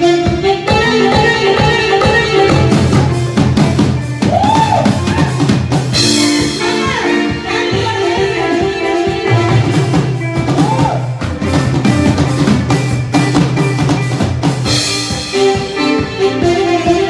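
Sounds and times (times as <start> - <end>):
music with drum beat: 0.0 - 17.0.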